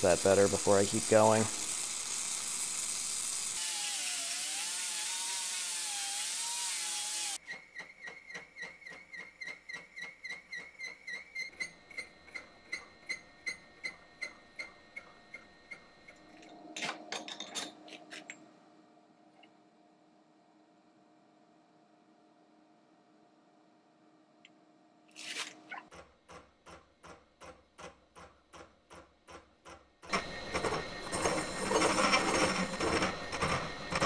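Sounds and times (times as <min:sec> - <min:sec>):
torch flame hissing: 0:00.0 - 0:04.6.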